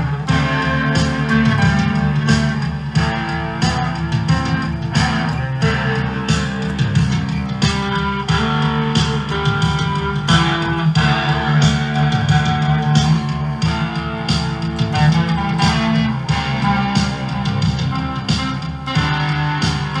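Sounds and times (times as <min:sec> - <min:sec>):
electric guitar music: 0:00.0 - 0:20.0
steady beat: 0:00.0 - 0:20.0.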